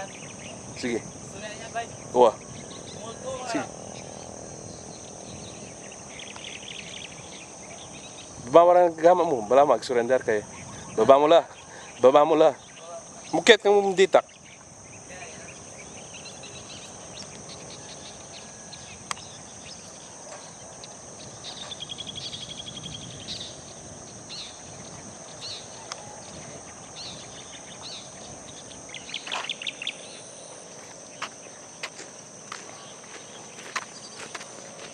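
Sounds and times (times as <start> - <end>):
birds chirping: 0.0 - 34.9
insect chorus: 0.0 - 34.9.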